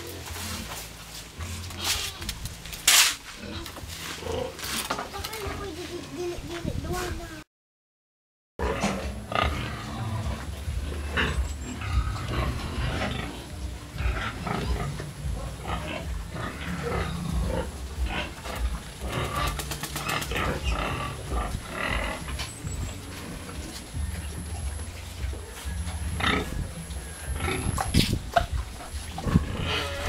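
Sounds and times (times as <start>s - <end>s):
pigs calling: 0.0s - 5.8s, 8.6s - 30.0s
steady low rumble: 9.1s - 29.8s.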